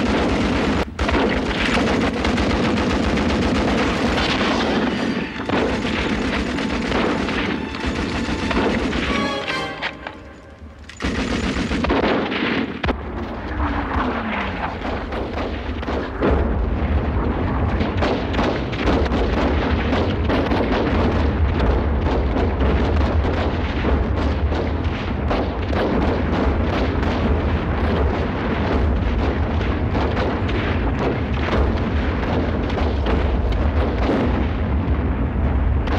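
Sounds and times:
low rumble of bombardment: 0.0 - 35.9
rifle and machine-gun fire: 0.0 - 35.9
shell explosions: 0.0 - 35.9.

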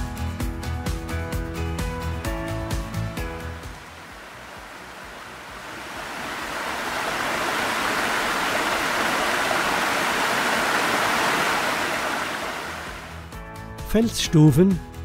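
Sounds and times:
waterfall rushing: 2.8 - 13.4.

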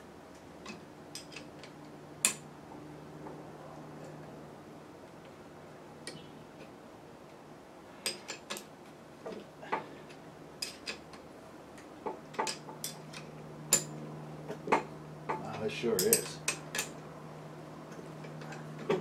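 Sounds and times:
steady low hum: 0.0 - 19.0
hand tools clinking on metal: 15.3 - 17.0.

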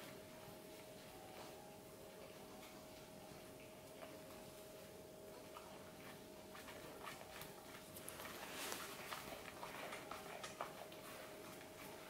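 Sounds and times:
faint steady hum: 0.0 - 12.0
puppy chewing bread: 3.6 - 12.0.

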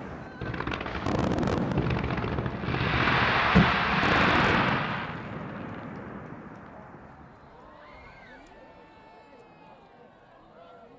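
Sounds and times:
fireworks barrage: 0.0 - 7.4
sharp firework bang: 0.8 - 5.8.

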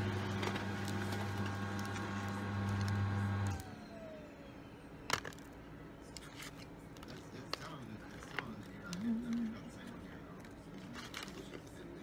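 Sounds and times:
wrapping paper crackle: 0.0 - 3.1, 6.2 - 12.0
electric fan humming: 0.0 - 12.0.

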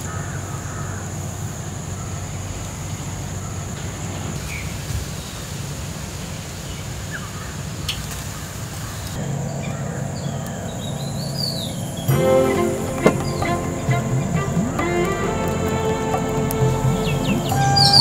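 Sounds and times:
birds chirping: 6.7 - 18.0.

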